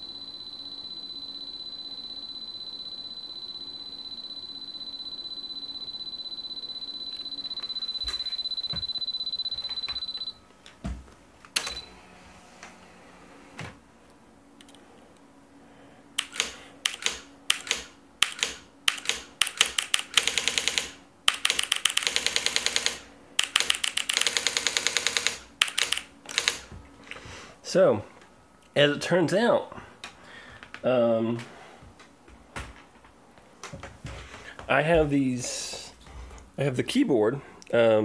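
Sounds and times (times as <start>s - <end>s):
steady high whine: 0.0s - 19.1s
electronic typewriter strikes: 16.2s - 26.7s.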